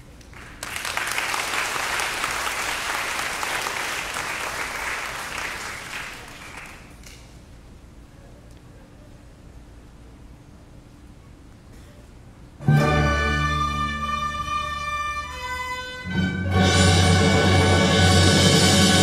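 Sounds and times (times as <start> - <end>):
audience applauding: 0.3 - 7.1.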